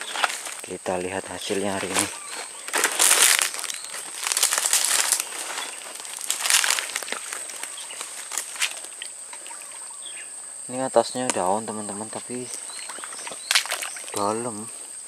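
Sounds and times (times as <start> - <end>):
twigs snapping: 0.0 - 0.7, 1.5 - 9.6, 12.4 - 14.3
dry leaves and twigs rustling: 0.0 - 10.4, 11.2 - 14.9.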